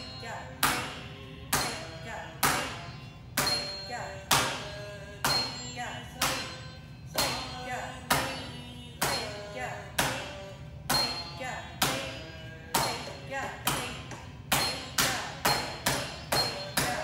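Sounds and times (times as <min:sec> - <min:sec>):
person chanting rhythm syllables: 0:00.0 - 0:17.0
sharp rhythmic strikes: 0:00.0 - 0:17.0
short ringing tone: 0:02.8 - 0:04.2.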